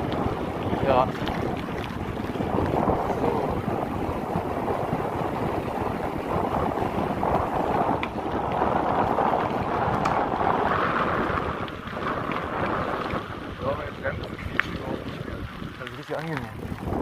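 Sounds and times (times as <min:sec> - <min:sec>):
bike tyre rumble: 0:00.0 - 0:17.0
wind noise on microphone: 0:00.0 - 0:17.0
faint bike clicks: 0:06.3 - 0:17.0.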